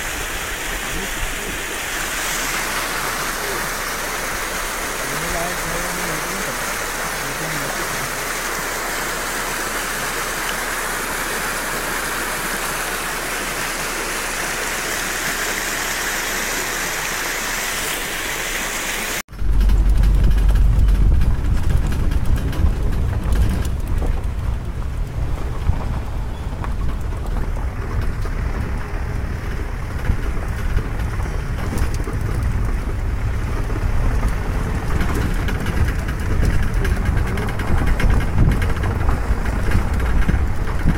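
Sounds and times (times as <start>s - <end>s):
vehicle driving on dirt track: 0.0s - 15.4s, 19.3s - 40.9s
stream water flowing: 0.0s - 22.1s
wind on microphone: 19.3s - 40.9s.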